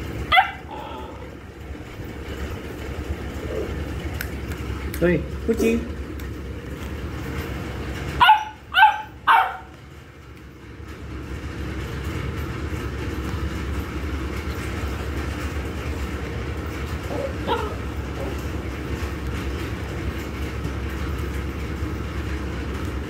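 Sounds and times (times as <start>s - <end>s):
steady low hum: 0.0s - 23.0s
puppy barking: 0.2s - 1.3s, 8.1s - 9.8s, 17.0s - 18.6s.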